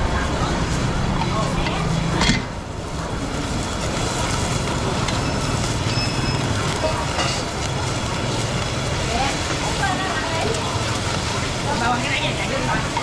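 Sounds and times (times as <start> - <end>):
gas burners roaring: 0.0 - 13.0
meat sizzling in skillets: 3.2 - 13.0.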